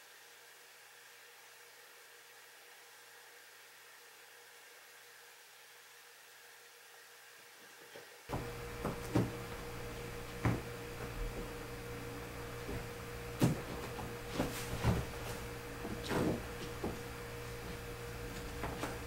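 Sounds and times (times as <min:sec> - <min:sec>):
kittens playing on a bed: 0:08.3 - 0:19.0
steady low hum: 0:08.3 - 0:19.0.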